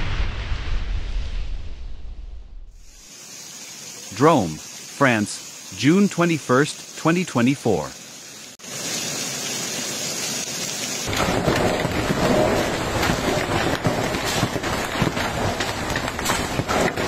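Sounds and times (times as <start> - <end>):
low rumble: 0.0 - 2.8
hailstones striking the ground: 8.6 - 17.0.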